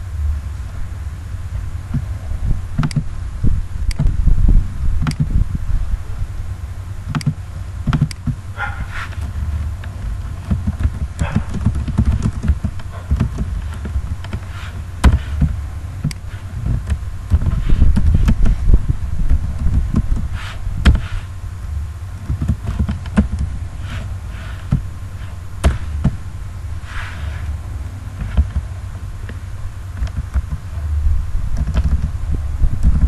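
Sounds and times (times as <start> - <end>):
low background rumble: 0.0 - 33.0
computer keyboard clicking: 10.5 - 13.5.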